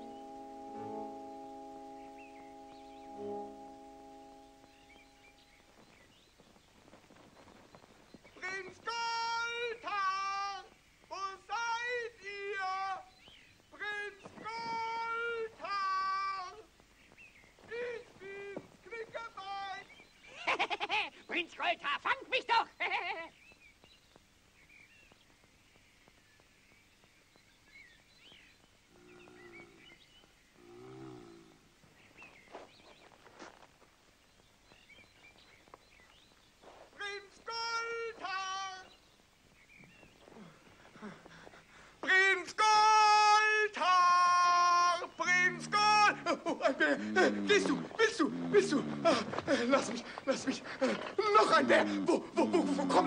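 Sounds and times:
faint birdsong: 0.0 - 53.0
bear growling: 45.4 - 49.5, 51.7 - 53.0.

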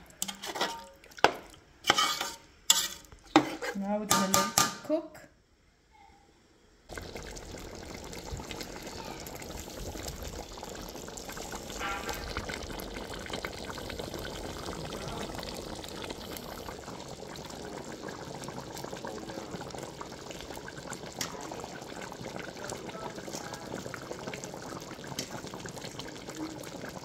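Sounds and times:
curry bubbling in a pot: 6.9 - 27.0.

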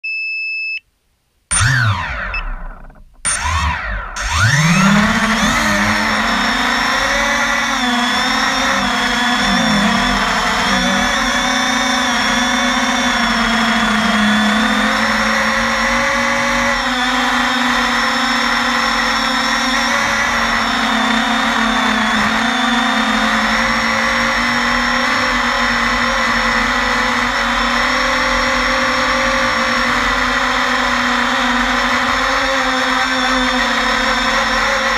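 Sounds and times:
short beep: 0.0 - 0.8, 1.5 - 3.4
drone motors whining: 1.5 - 34.9.

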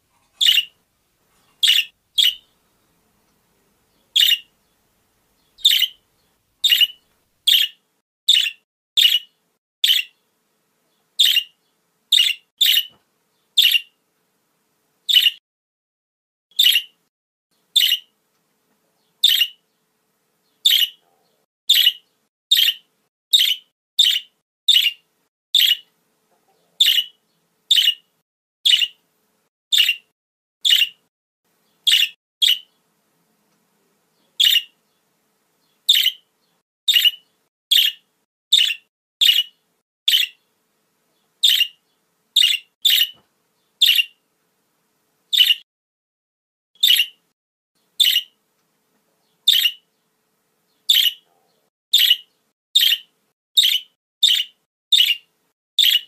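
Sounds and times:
budgerigars chirping: 0.3 - 0.7, 1.5 - 2.6, 4.0 - 4.5, 5.4 - 6.0, 6.6 - 10.1, 11.2 - 13.0, 13.6 - 13.9, 15.1 - 15.4, 16.5 - 17.0, 17.8 - 18.1, 19.2 - 19.6, 20.6 - 21.0, 21.7 - 25.0, 25.6 - 25.9, 26.8 - 29.0, 29.7 - 31.0, 31.8 - 32.7, 34.4 - 34.8, 35.8 - 36.2, 36.9 - 39.5, 40.1 - 40.4, 41.4 - 41.8, 42.4 - 43.2, 43.8 - 44.2, 45.3 - 45.6, 46.8 - 47.2, 48.0 - 48.4, 49.5 - 49.8, 50.9 - 51.2, 51.9 - 56.0.

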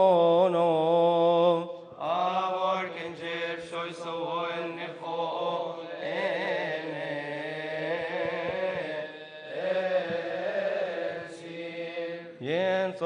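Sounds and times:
man chanting: 0.0 - 13.0.

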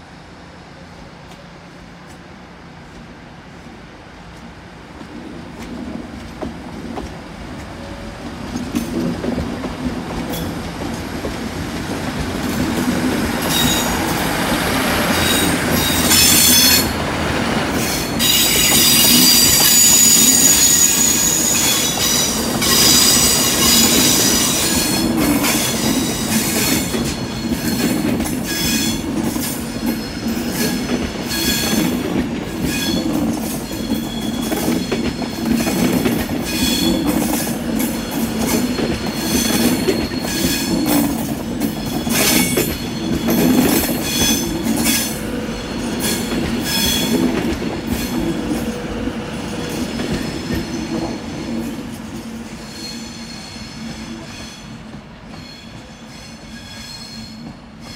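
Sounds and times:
train wheels rumbling on rails: 0.0 - 57.9
shrill wheel squeal: 13.4 - 17.0, 17.8 - 29.1, 32.6 - 35.8, 36.4 - 37.2, 37.9 - 47.2, 52.5 - 54.8, 55.4 - 57.9.

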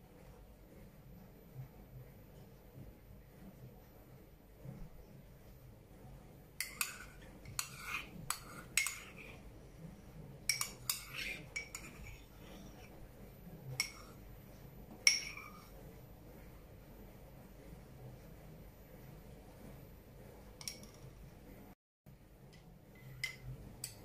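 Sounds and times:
metal spoon clinking against pan: 6.6 - 9.3, 10.5 - 12.2, 13.8 - 14.2, 15.1 - 15.6.

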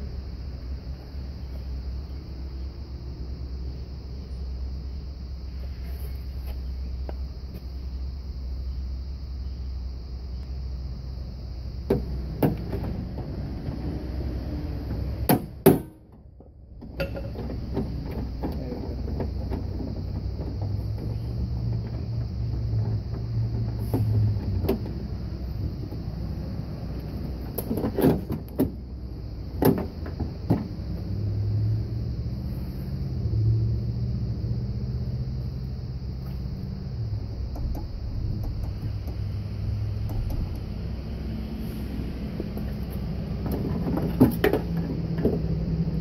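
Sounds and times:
low rumble: 30.3 - 46.0.

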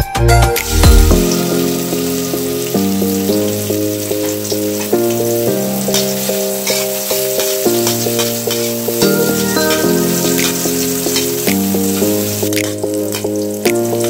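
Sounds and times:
stepping melody: 0.0 - 14.0
onions sizzling in oil: 0.6 - 14.0
metal spoon stirring: 5.9 - 13.4.

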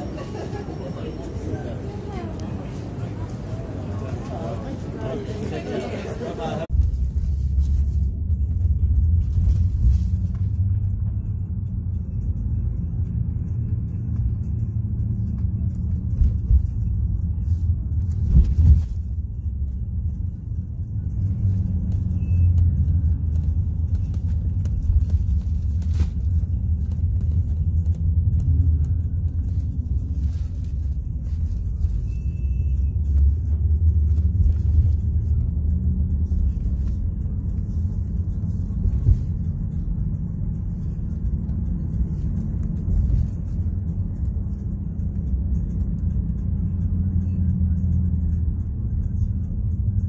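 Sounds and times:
car interior rumble: 6.5 - 50.0.

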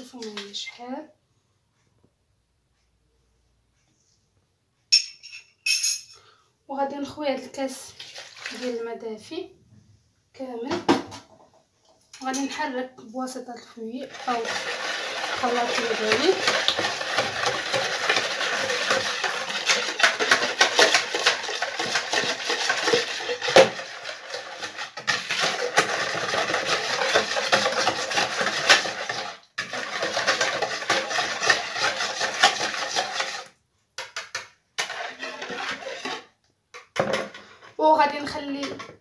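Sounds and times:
wire whisk beating in plastic bowl: 14.1 - 36.3.

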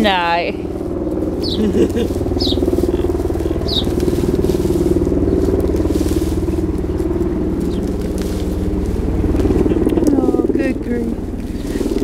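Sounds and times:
helicopter flying overhead: 0.0 - 12.0
ducklings peeping: 1.4 - 8.6.

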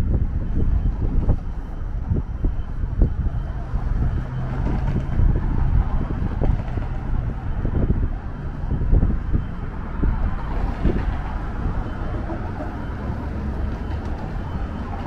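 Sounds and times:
passing vehicles: 0.0 - 15.0
wind on microphone: 0.0 - 15.0.

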